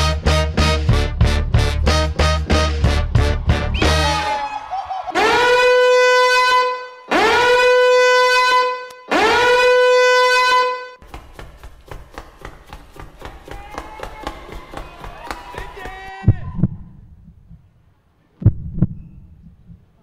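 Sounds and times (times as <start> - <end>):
horn-like held notes: 5.2 - 11.0.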